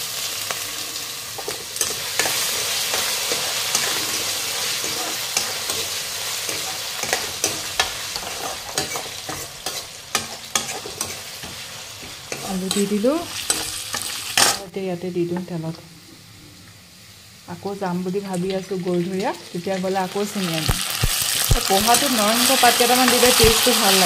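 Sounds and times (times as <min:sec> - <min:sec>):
potatoes sizzling in hot oil: 0:00.0 - 0:14.6, 0:16.9 - 0:24.0
steel ladle scraping pan: 0:00.8 - 0:14.6.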